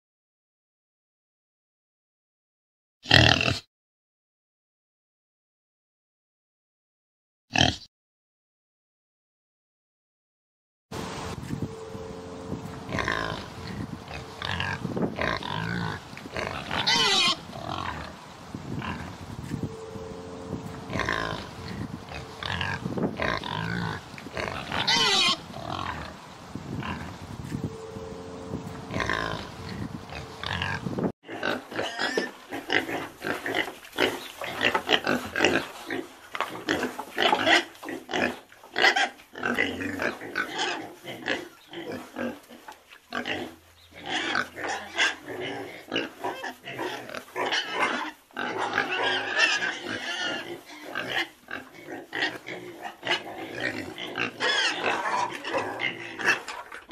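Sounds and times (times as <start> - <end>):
pigs grunting: 3.1 - 3.7, 7.6 - 7.8, 12.6 - 27.2, 28.4 - 56.9
pigs squealing: 12.7 - 18.2, 20.4 - 26.2, 28.7 - 56.9.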